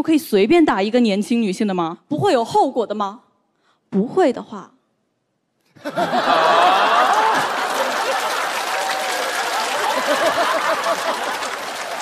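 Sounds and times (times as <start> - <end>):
audience laughing: 5.8 - 12.0
audience applauding: 5.9 - 12.0.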